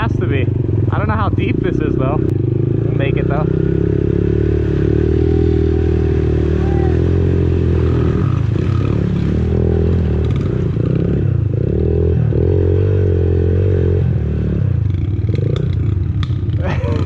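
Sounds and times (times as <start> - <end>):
motorbike engine revving: 0.0 - 17.0
water splashing: 5.7 - 11.0.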